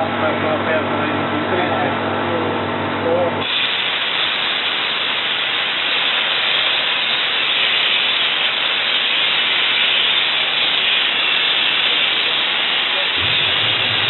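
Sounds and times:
steam hissing from nozzle: 0:03.4 - 0:14.0.

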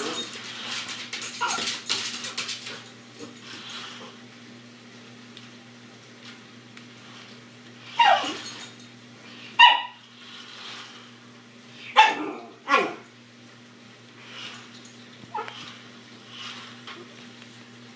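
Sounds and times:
small dog barking: 0:09.6 - 0:10.0, 0:11.9 - 0:13.0.

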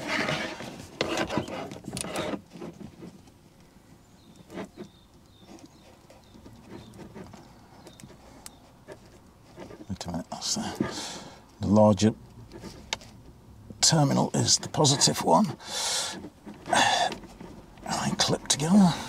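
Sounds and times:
wires rustling: 0:00.0 - 0:19.0.

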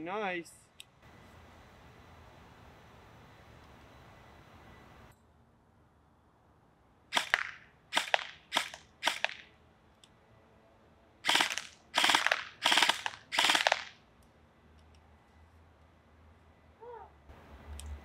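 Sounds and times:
airsoft rifle full-auto bursts: 0:07.1 - 0:09.4, 0:11.2 - 0:13.9.

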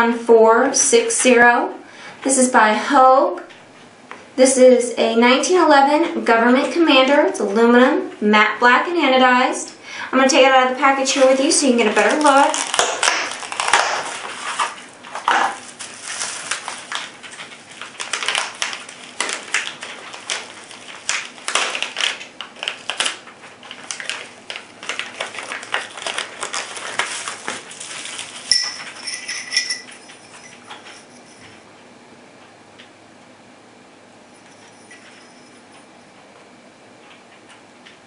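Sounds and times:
bubble wrap crinkling: 0:11.1 - 0:31.1.

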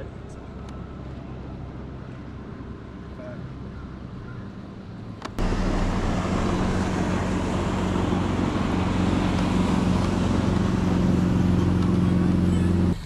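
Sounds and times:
low motor hum: 0:05.2 - 0:13.0
rushing noise: 0:05.4 - 0:11.5.

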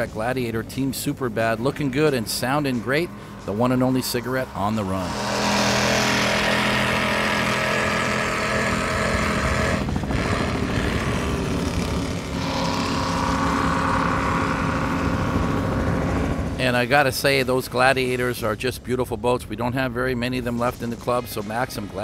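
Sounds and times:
higher-pitched drone: 0:00.0 - 0:16.9
powerboat engines droning: 0:00.0 - 0:22.0
rushing water noise: 0:01.9 - 0:16.8.

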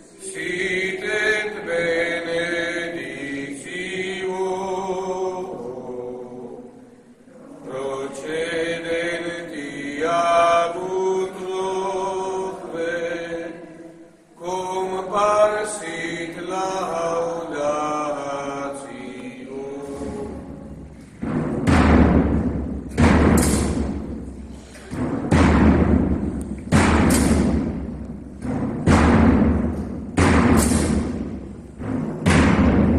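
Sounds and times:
priest chanting in echoing church: 0:00.0 - 0:20.9
slow drum beats: 0:19.8 - 0:32.9.

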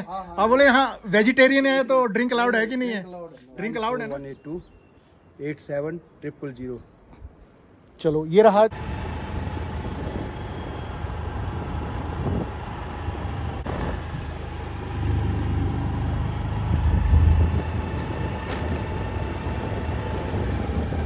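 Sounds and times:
vehicle engine rumbling: 0:08.7 - 0:21.0.

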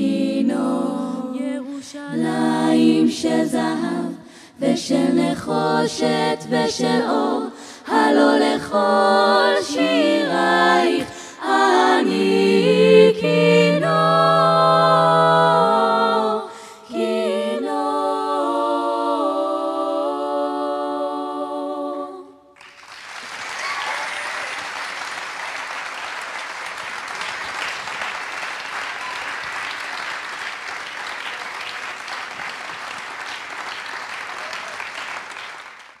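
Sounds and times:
a cappella vocal harmony: 0:00.0 - 0:22.6
audience applauding: 0:22.6 - 0:36.0.

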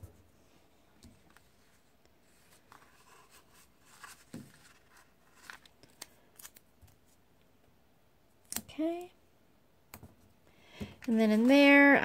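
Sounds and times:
paper sheets rustling: 0:01.3 - 0:06.6, 0:11.0 - 0:12.0.

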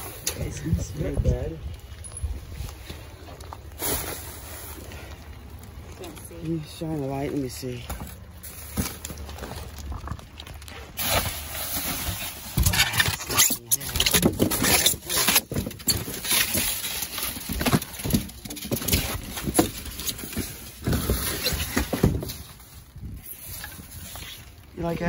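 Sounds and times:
cardboard boxes being shifted: 0:00.0 - 0:25.0
plastic bags crinkling: 0:00.0 - 0:25.0.

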